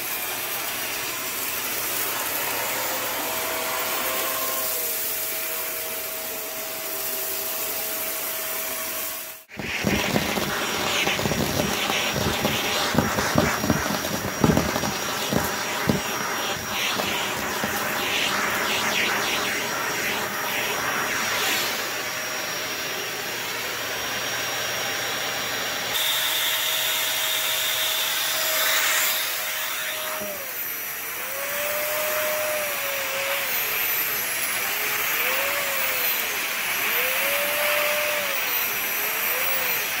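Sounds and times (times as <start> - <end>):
vacuum cleaner motor whine: 0.0 - 40.0
vacuum crackling sucking debris: 9.5 - 22.1.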